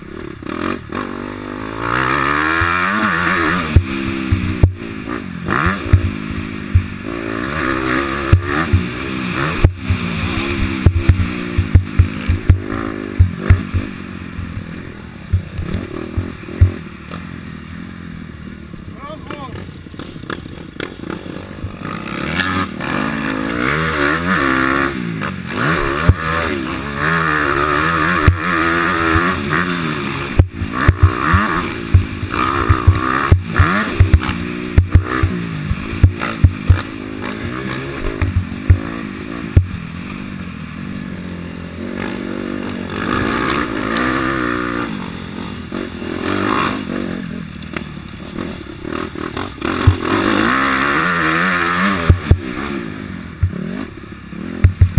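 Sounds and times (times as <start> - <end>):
motocross bike engine revving: 0.0 - 54.9
loud thumps over bumpy ground: 3.6 - 4.8, 5.7 - 7.0, 8.2 - 14.7, 15.3 - 16.8, 30.3 - 39.9, 49.7 - 50.4, 52.0 - 52.5, 54.6 - 54.9.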